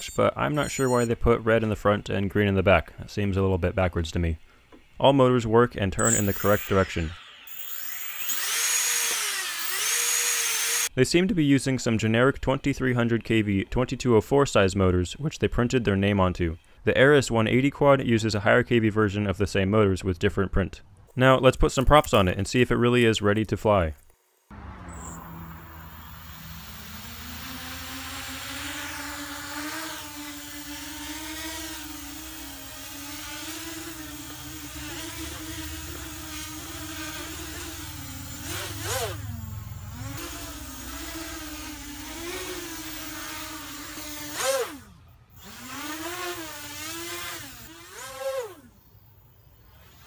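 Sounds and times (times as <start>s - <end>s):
quadcopter motors buzzing whine: 0.0s - 1.2s, 6.0s - 10.9s, 24.3s - 50.0s.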